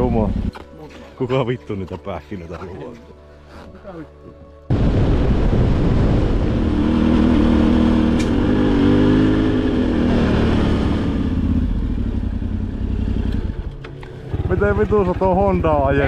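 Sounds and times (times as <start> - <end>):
motorcycle engine running: 0.0 - 0.5, 6.4 - 16.0.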